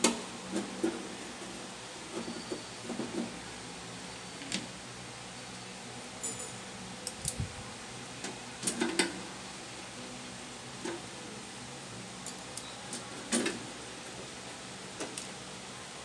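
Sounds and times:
screwdriver and screws clinking on metal: 0:06.2 - 0:07.4.

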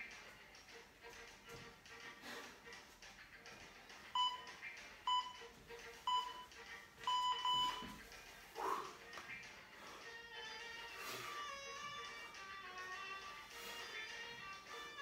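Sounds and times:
interval timer beeping: 0:04.2 - 0:05.5, 0:06.1 - 0:08.0.

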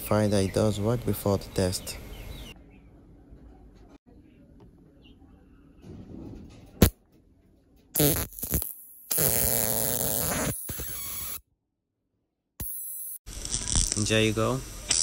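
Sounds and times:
electric arc crackling buzz: 0:08.0 - 0:11.4, 0:12.6 - 0:15.0.

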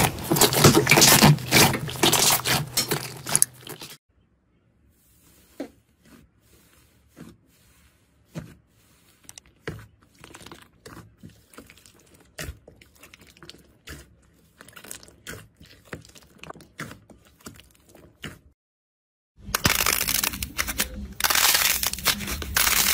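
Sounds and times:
slime popping and crackling: 0:00.0 - 0:04.0, 0:19.6 - 0:22.9.

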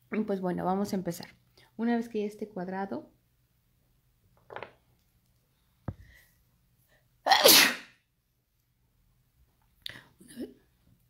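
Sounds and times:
woman sneezing loudly: 0:07.3 - 0:08.0.

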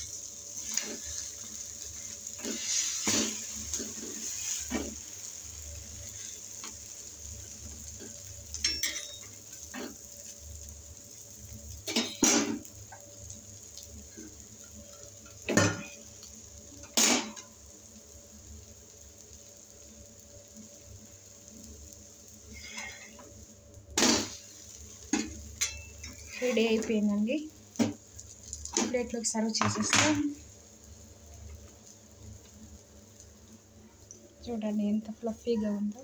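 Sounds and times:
oil sizzling: 0:00.0 - 0:36.0
spatula scraping griddle: 0:00.6 - 0:05.0, 0:22.6 - 0:23.2.

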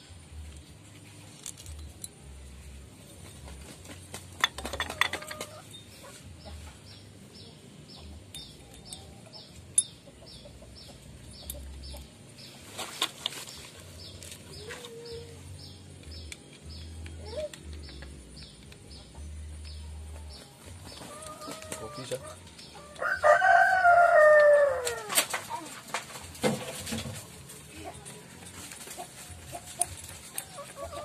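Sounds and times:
chicken clucking: 0:03.4 - 0:08.2, 0:08.9 - 0:12.1, 0:20.1 - 0:31.0
small bird chirping: 0:05.6 - 0:23.0.

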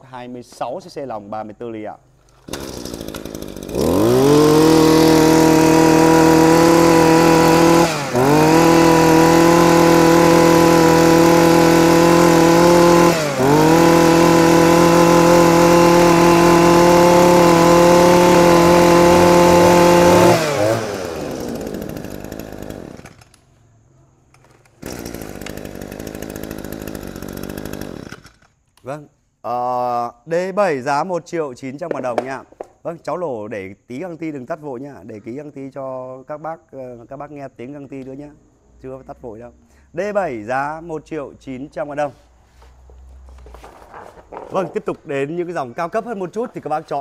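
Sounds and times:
brush cutter engine revving: 0:02.3 - 0:23.4, 0:24.8 - 0:28.5, 0:42.6 - 0:47.0.

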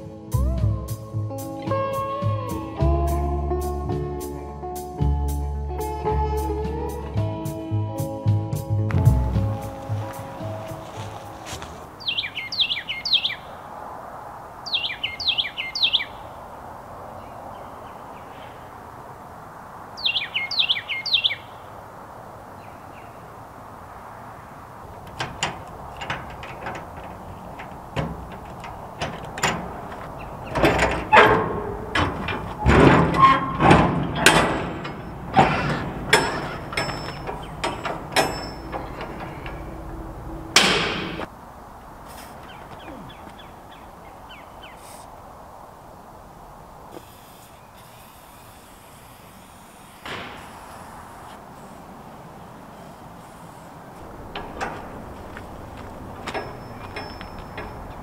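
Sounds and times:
bird chirping: 0:09.9 - 0:13.6, 0:14.6 - 0:18.9, 0:19.8 - 0:21.9, 0:22.5 - 0:23.5, 0:24.3 - 0:31.7, 0:36.1 - 0:41.3, 0:42.2 - 0:45.1
heavy metal door creaking open: 0:24.4 - 0:41.3, 0:50.0 - 0:51.7, 0:52.5 - 0:58.0
metal locking bars clanking: 0:24.9 - 0:41.3, 0:54.0 - 0:58.0.

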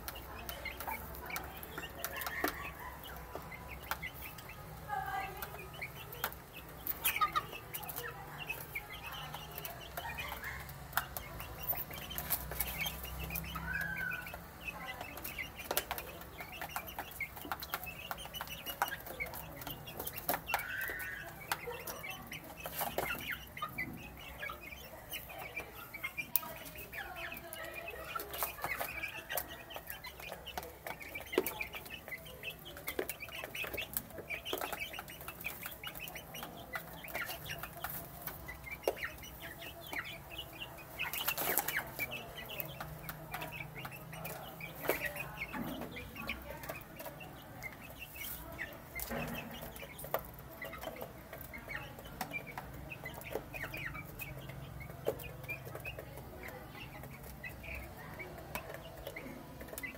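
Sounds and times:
chicks peeping: 0:00.0 - 0:59.9.

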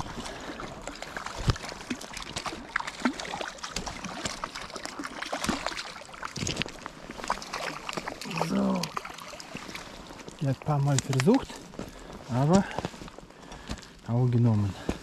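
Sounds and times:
fish splashing in water: 0:00.0 - 0:10.4.

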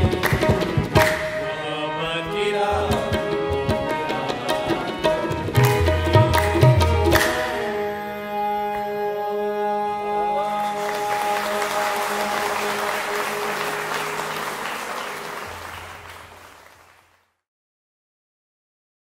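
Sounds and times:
tabla: 0:00.0 - 0:01.6, 0:02.7 - 0:08.5
harmonium chord: 0:00.0 - 0:17.2
audience applause and cheering: 0:10.4 - 0:17.4.

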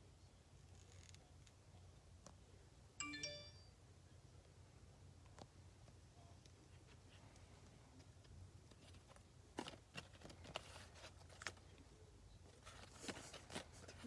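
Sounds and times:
paper cards rustling: 0:08.7 - 0:11.8, 0:12.5 - 0:14.0.

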